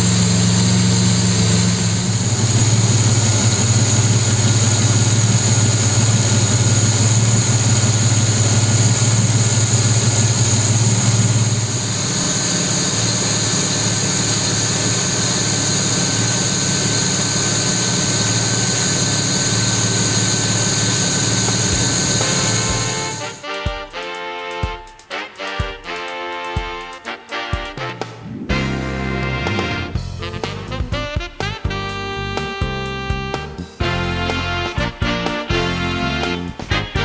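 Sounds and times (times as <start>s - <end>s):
car engine idling: 0.0s - 23.4s.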